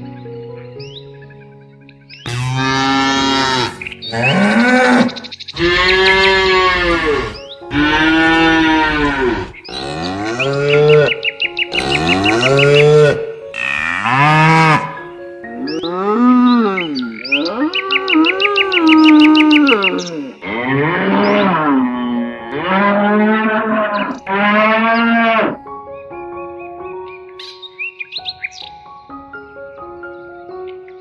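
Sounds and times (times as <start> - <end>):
cows mooing: 2.3 - 15.0, 15.6 - 25.6.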